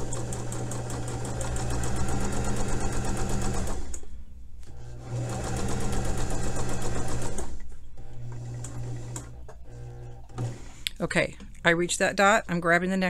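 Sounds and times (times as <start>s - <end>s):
sewing machine stitching: 0.0s - 4.0s, 4.8s - 10.7s.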